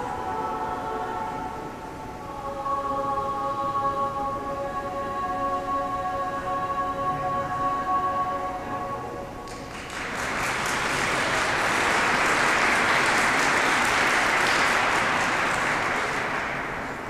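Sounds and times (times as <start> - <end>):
choir singing: 0.0 - 9.4
audience applause: 9.5 - 17.0.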